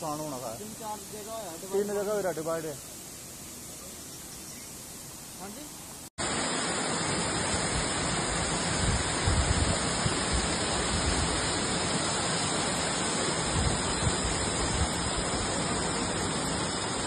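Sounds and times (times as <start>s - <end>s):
water rushing down gully: 6.2s - 17.0s.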